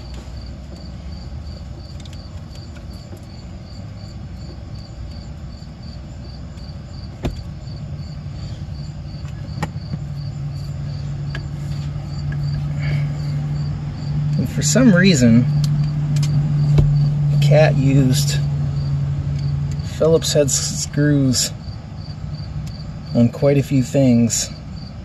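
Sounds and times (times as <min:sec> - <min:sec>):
low hum: 0:00.0 - 0:23.3
cricket chirping: 0:00.0 - 0:25.0
sharp knocks: 0:16.2 - 0:17.1.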